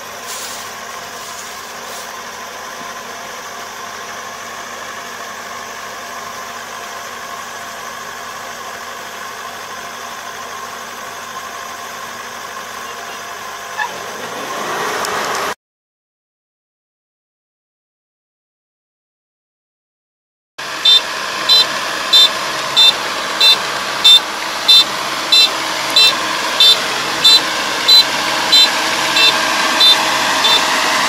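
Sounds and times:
combine harvester running: 0:00.0 - 0:15.6, 0:20.6 - 0:31.0
thin whining tones: 0:20.8 - 0:31.0.

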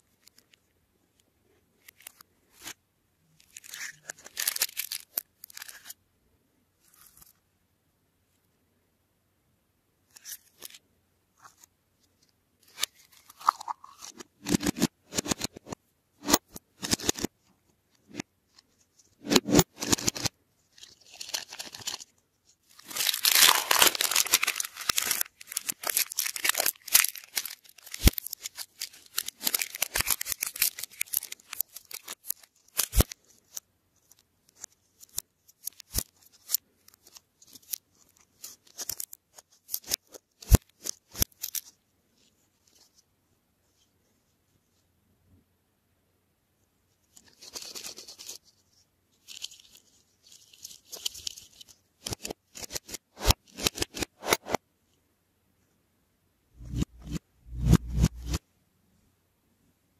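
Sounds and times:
plastic wrappers crinkling: 0:03.4 - 0:05.9, 0:19.5 - 0:22.1, 0:22.7 - 0:33.6
plastic shells clicking and rattling: 0:22.8 - 0:33.1.

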